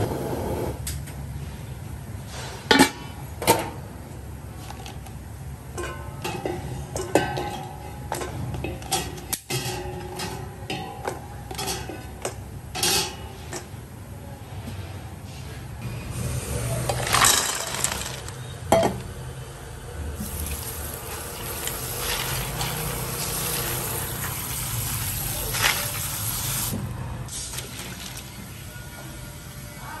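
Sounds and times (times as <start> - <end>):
water pouring over ice cubes: 20.2 - 26.7, 27.4 - 28.4.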